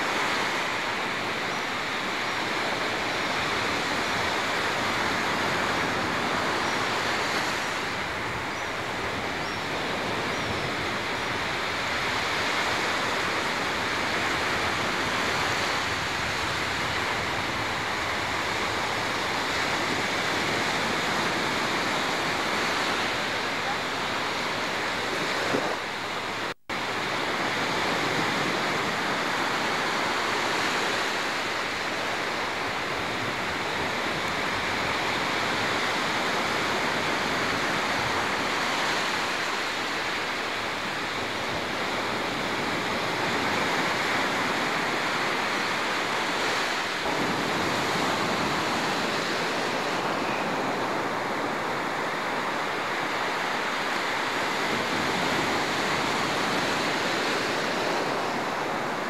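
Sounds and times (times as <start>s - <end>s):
surf breaking on beach: 0.0s - 59.0s.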